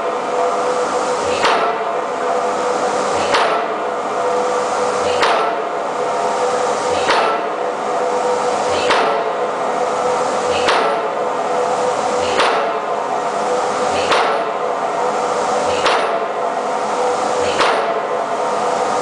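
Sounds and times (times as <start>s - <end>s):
impact hammer blows on pipe: 3.2s - 3.8s, 6.9s - 7.6s, 8.7s - 9.4s, 10.5s - 11.2s, 12.2s - 12.9s, 17.4s - 18.1s.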